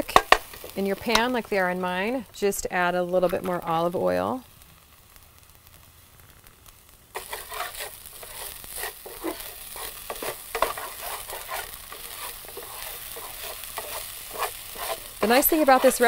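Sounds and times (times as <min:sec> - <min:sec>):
oil sizzling in a skillet: 0:00.0 - 0:16.0
spatula scraping rice in pan: 0:07.2 - 0:16.0.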